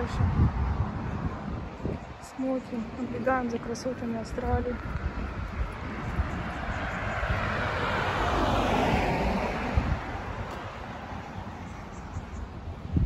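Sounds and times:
car passing: 0.0 - 13.0.

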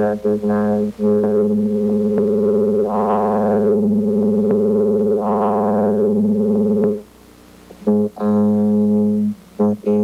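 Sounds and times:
low synthesizer drone: 0.0 - 7.0.

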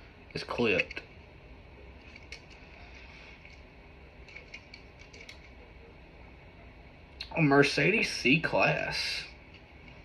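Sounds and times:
low room hum: 0.0 - 10.0
small clicks of toy car handled: 4.2 - 5.6.

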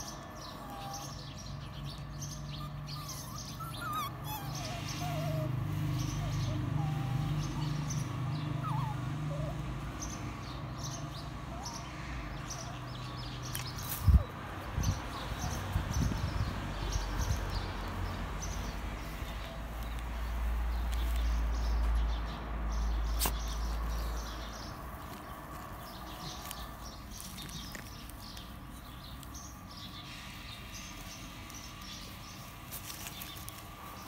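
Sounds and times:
rustling on grass: 23.1 - 34.0.

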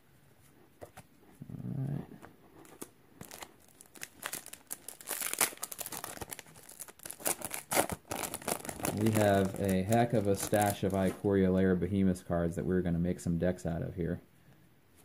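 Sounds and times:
foil wrapper crinkling and tearing: 2.8 - 11.1.

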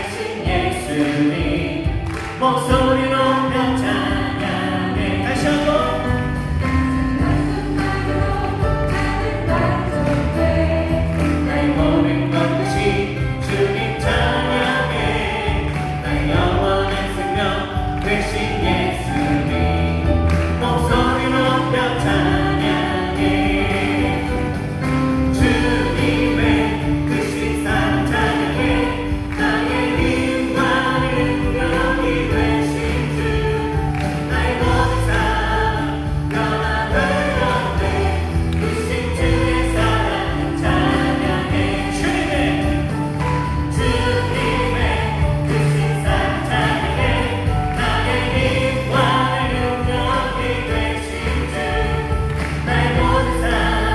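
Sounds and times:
man singing lead: 0.0 - 6.3, 11.4 - 38.2, 43.8 - 52.0
group singing praise song: 0.0 - 53.9
live band with acoustic guitar: 0.0 - 53.9.

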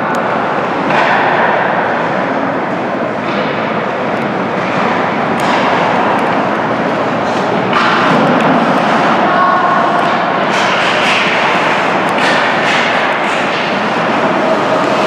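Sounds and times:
skate blades scraping ice: 10.5 - 15.0.

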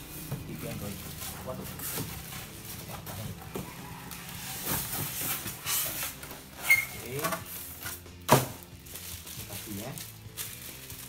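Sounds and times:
foam and cardboard scraping: 0.0 - 11.0
sharp squeak: 6.6 - 7.2.

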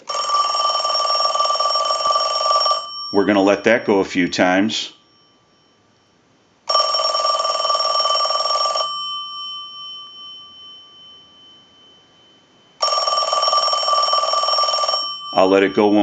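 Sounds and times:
telephone bell ringing: 0.0 - 3.3, 6.7 - 16.0.

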